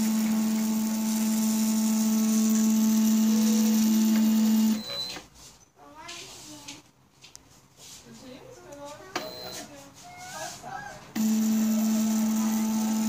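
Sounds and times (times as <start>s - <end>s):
stepper motors whining: 0.0s - 5.0s, 11.2s - 13.0s.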